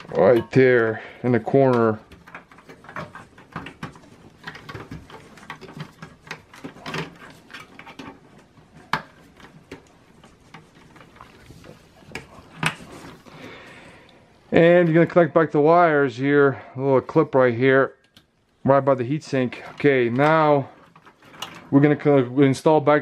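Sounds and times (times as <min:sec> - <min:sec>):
cables and plastic connectors clicking: 0:00.0 - 0:14.2.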